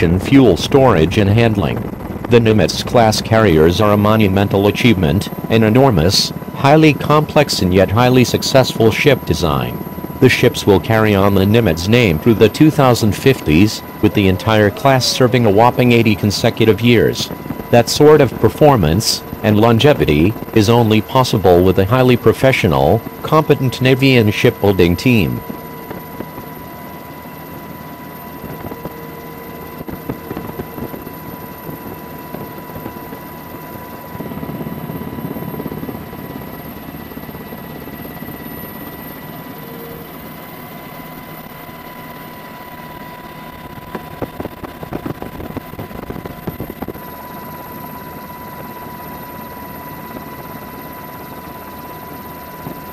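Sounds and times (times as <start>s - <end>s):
high-pitched whine: 0.0s - 26.0s
helicopter rotor chop: 0.0s - 52.9s.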